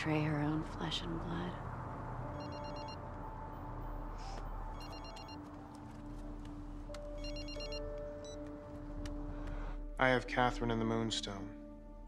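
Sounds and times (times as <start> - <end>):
mobile phone ringing: 2.4 - 3.0, 4.7 - 5.5, 7.2 - 8.4.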